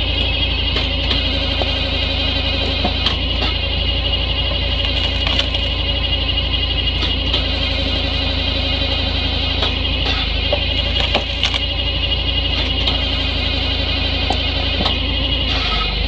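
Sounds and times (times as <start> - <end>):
log splitter engine drone: 0.0 - 16.0
wood knocks and cracks: 4.6 - 5.9, 10.5 - 11.7.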